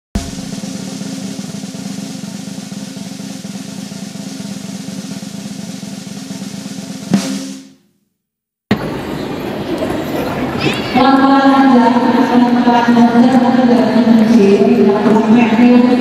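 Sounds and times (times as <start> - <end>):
strong snare hit: 0.1 - 2.2
snare drum roll: 0.1 - 7.8.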